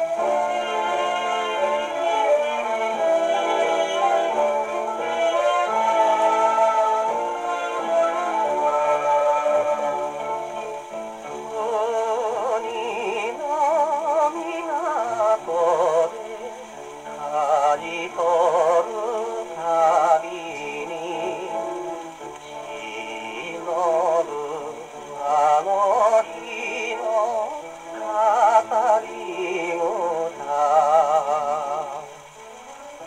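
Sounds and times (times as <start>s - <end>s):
band accompaniment: 0.0s - 12.6s
man singing with vibrato: 0.0s - 33.0s.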